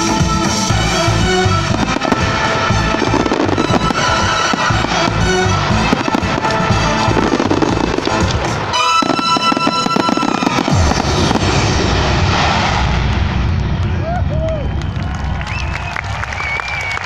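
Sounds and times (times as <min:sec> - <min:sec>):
loud music: 0:00.0 - 0:13.6
fireworks bangs and crackles: 0:00.0 - 0:16.2.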